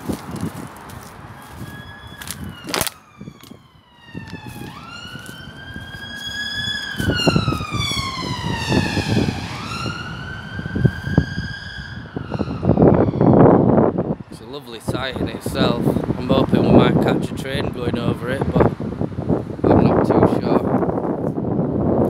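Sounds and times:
wind rumble on microphone: 0.0 - 22.0
siren wailing: 0.1 - 14.3.

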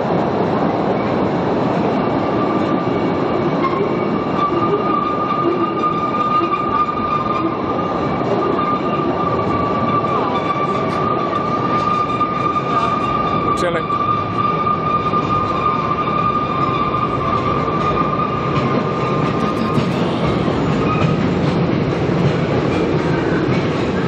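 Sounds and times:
train cars rumbling and rattling: 0.0 - 24.0
high-pitched wheel squeal: 2.4 - 21.5.

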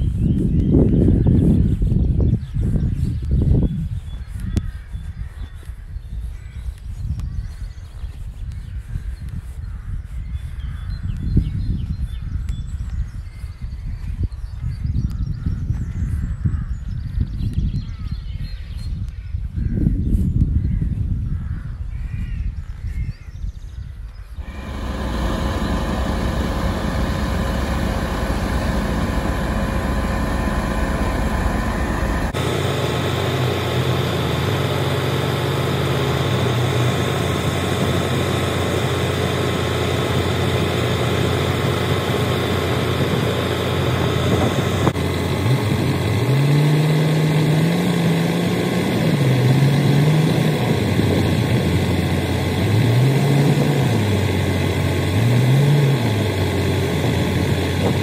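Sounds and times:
diesel machinery running: 24.4 - 58.0
engine revving: 24.4 - 58.0.

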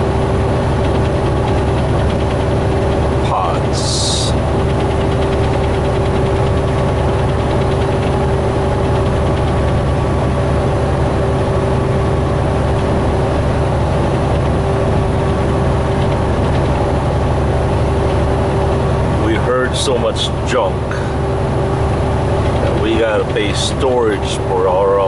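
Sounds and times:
constant hum: 0.0 - 25.0
road rumble: 0.0 - 25.0
truck engine drone: 0.0 - 25.0.

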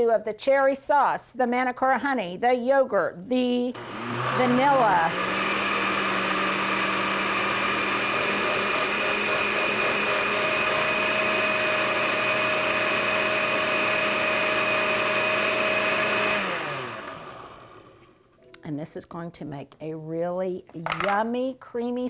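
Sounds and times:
electric blender whirring: 3.8 - 18.1.

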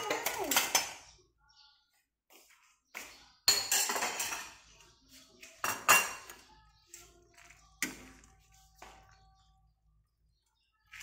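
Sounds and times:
dishes and utensils clattering: 0.0 - 1.2, 3.4 - 9.2.

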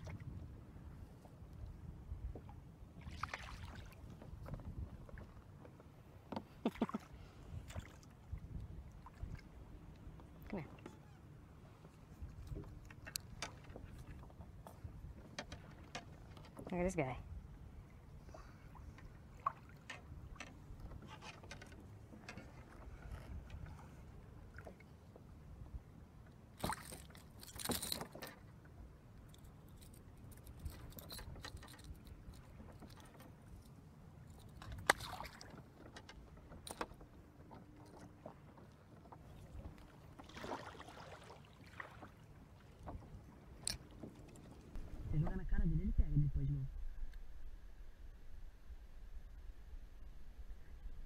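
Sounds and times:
fishing gear clicking and rattling: 26.6 - 28.5, 29.3 - 35.2
low rumble: 44.8 - 51.0.

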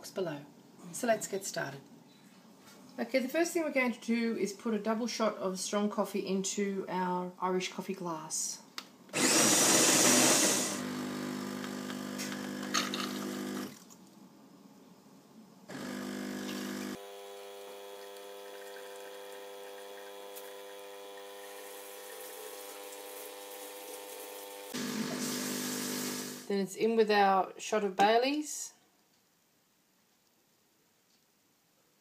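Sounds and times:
espresso machine pump humming: 9.2 - 13.7, 15.7 - 26.5
loud hiss: 24.8 - 26.5.

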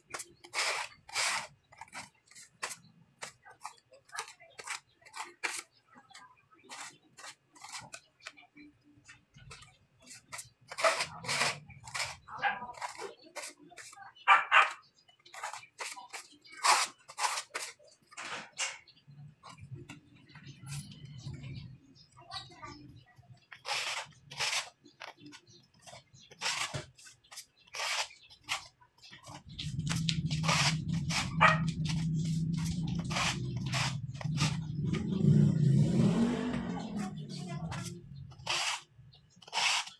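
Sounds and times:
trowel scraping putty: 0.1 - 5.7, 9.5 - 14.0, 15.3 - 17.9, 23.5 - 25.1, 25.9 - 39.9.

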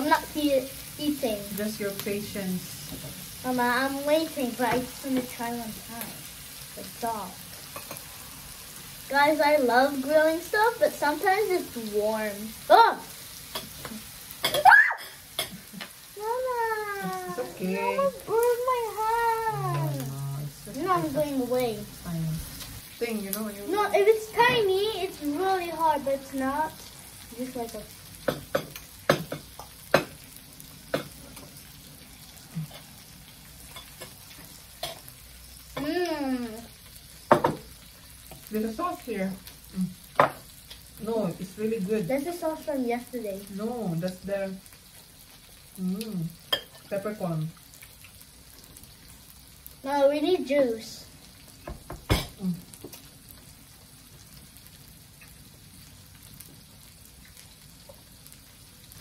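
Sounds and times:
meat sizzling on a grill plate: 0.0 - 59.0
person humming: 19.3 - 20.5, 35.8 - 36.7.

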